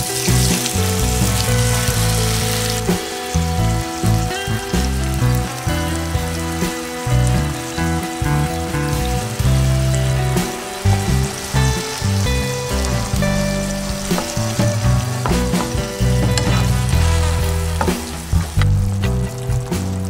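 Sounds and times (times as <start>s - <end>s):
background music: 0.0s - 20.0s
tomatoes sizzling in hot oil: 0.0s - 20.0s
wooden spatula scraping pan: 14.0s - 18.8s.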